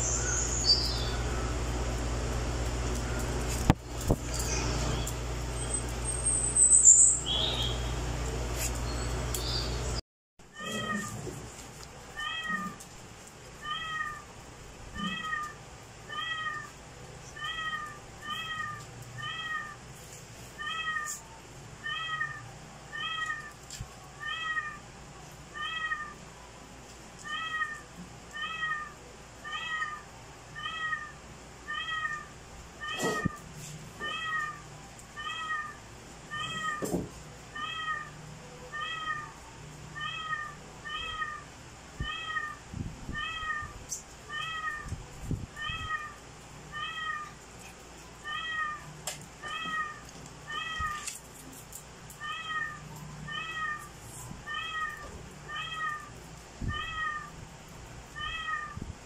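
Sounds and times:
cat meowing: 0:10.5 - 0:11.3, 0:12.2 - 0:12.8, 0:13.6 - 0:14.3, 0:15.0 - 0:16.7, 0:17.4 - 0:19.8, 0:20.6 - 0:23.6, 0:25.6 - 0:26.2, 0:27.2 - 0:33.4, 0:34.0 - 0:39.4, 0:40.0 - 0:45.0, 0:45.6 - 0:47.4, 0:48.2 - 0:51.1, 0:52.2 - 0:57.4, 0:58.2 - 0:58.8.

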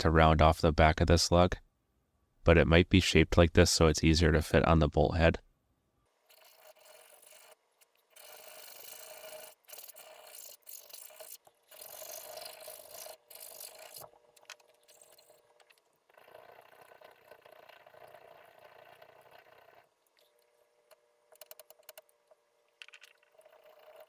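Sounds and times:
hand file rasping on metal: 0:06.3 - 0:14.0.

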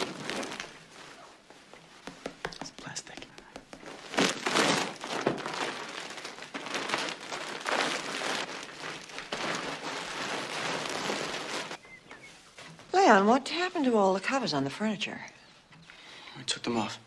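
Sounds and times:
plastic covers crinkling: 0:00.0 - 0:01.8, 0:03.7 - 0:12.9.

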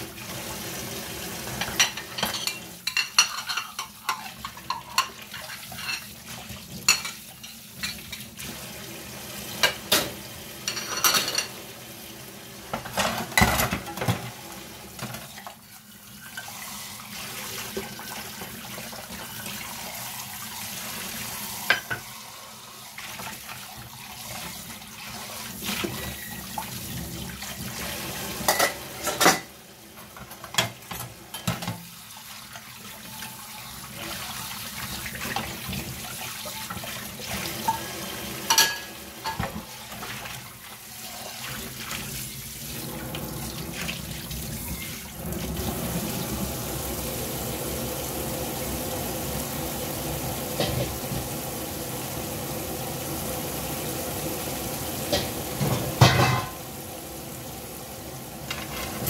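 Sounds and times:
utensils and dishes clinking: 0:01.5 - 0:08.3, 0:09.6 - 0:11.6, 0:12.7 - 0:14.3, 0:25.8 - 0:26.5, 0:28.4 - 0:29.6, 0:30.2 - 0:31.8, 0:36.5 - 0:40.2, 0:50.6 - 0:51.0, 0:55.1 - 0:56.7, 0:58.5 - 0:59.0.

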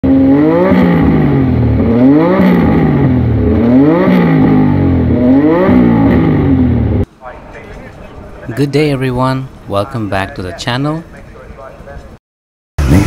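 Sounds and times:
motorcycle engine revving: 0:00.0 - 0:07.1, 0:12.8 - 0:13.0.

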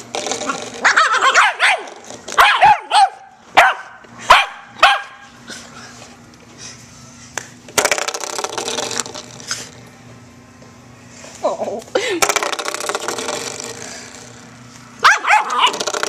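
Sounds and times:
puppy barking: 0:00.8 - 0:05.2, 0:15.0 - 0:15.8
door stopper rattling: 0:12.2 - 0:14.2.

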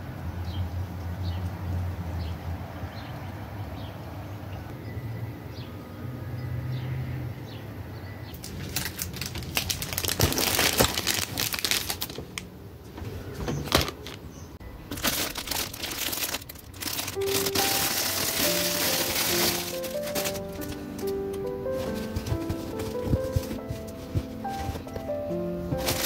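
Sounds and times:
plastic bags crinkling: 0:08.4 - 0:12.5, 0:13.6 - 0:26.0
soft music notes: 0:16.8 - 0:26.0.

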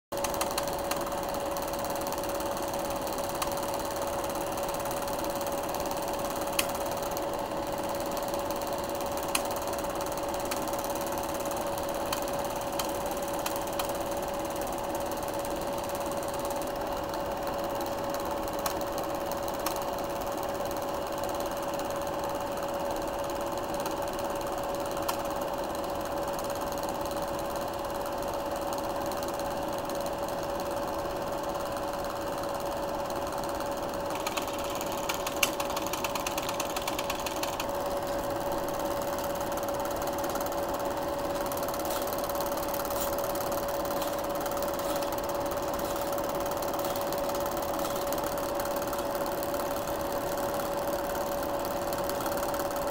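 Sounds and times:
film projector clatter: 0:00.1 - 0:52.9
constant hum: 0:00.2 - 0:52.9
sharp clicks: 0:05.3 - 0:07.3, 0:08.6 - 0:14.0, 0:34.1 - 0:38.2.

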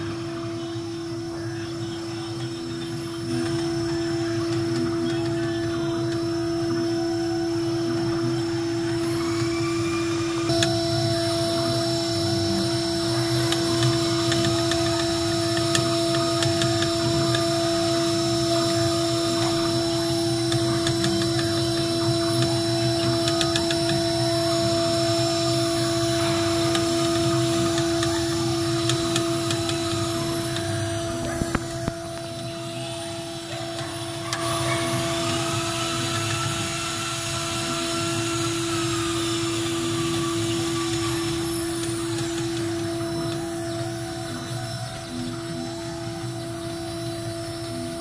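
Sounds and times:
drive motors whining: 0:00.0 - 0:48.0
router spindle whine: 0:00.0 - 0:48.0
end mill cutting wood: 0:02.2 - 0:48.0
chip clicks: 0:10.4 - 0:32.5.

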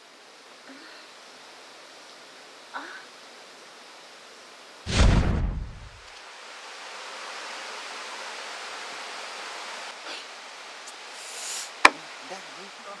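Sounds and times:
loud rumble: 0:04.9 - 0:06.0
steady rushing noise: 0:04.9 - 0:06.2.

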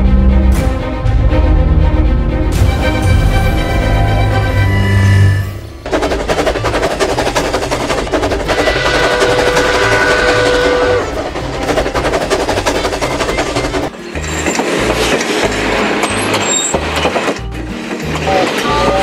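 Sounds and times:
toy train clattering on track: 0:05.9 - 0:19.0.

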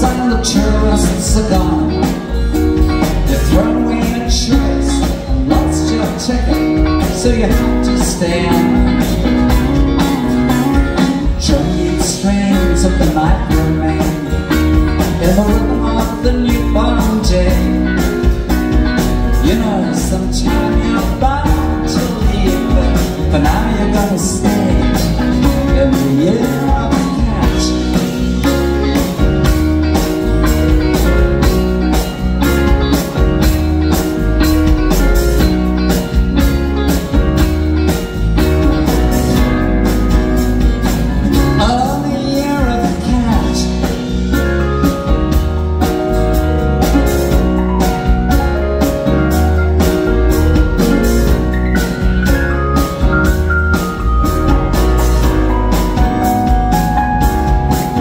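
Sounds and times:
rock band playing: 0:00.0 - 0:58.0
drum beat: 0:42.7 - 0:58.0.

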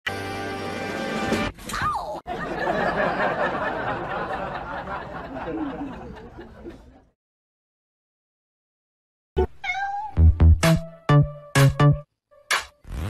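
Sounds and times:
people laughing: 0:02.3 - 0:07.1.

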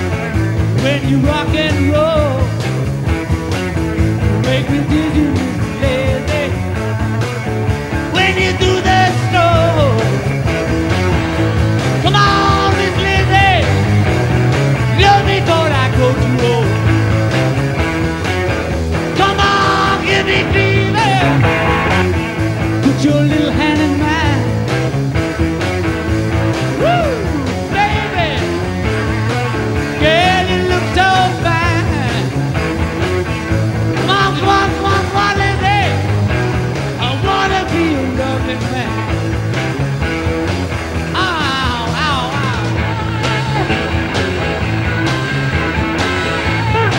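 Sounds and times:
rock band playing: 0:00.0 - 0:46.9
man singing lead vocal: 0:00.7 - 0:02.6, 0:04.3 - 0:06.8, 0:08.0 - 0:10.3, 0:12.0 - 0:13.8, 0:14.9 - 0:16.9, 0:19.0 - 0:21.9, 0:22.8 - 0:24.6, 0:26.8 - 0:28.7, 0:30.0 - 0:32.4, 0:34.0 - 0:36.1, 0:37.0 - 0:39.1, 0:41.1 - 0:44.1, 0:44.7 - 0:46.9.

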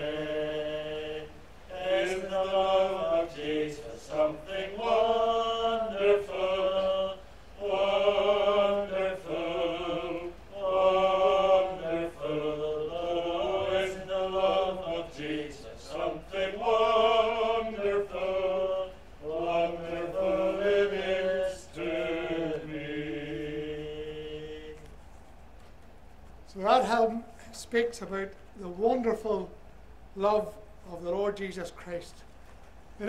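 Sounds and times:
congregation singing a hymn: 0:00.0 - 0:25.0.

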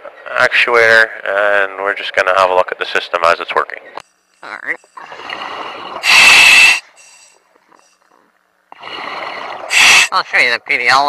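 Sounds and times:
exhaled bubbles rushing: 0:05.0 - 0:06.1, 0:08.8 - 0:10.1
regulator inhale hiss: 0:05.6 - 0:08.1, 0:08.8 - 0:10.2.

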